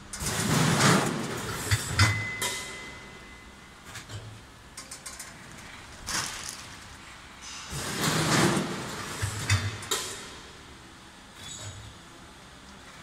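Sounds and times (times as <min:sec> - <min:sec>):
packing machine running: 0:00.1 - 0:03.1, 0:04.9 - 0:10.6.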